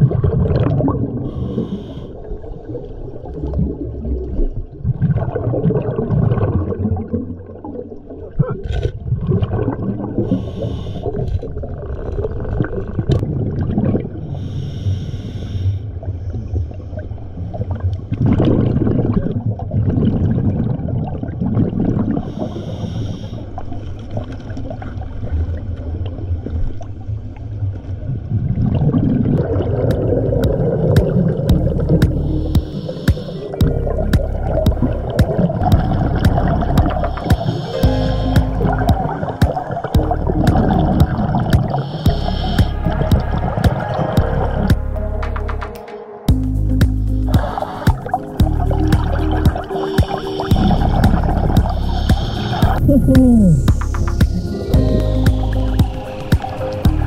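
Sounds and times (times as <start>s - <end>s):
exhaled bubbles gurgling: 0.0s - 14.7s, 15.9s - 45.2s, 46.3s - 57.0s
regulator hissing inhales: 1.3s - 2.3s, 10.3s - 11.2s, 14.4s - 15.9s, 22.3s - 23.6s, 32.1s - 33.6s, 36.9s - 39.2s, 41.6s - 43.0s, 49.7s - 52.8s.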